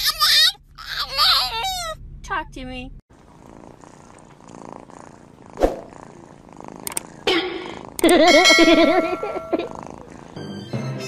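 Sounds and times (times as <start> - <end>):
cat purring: 3.2 - 10.7.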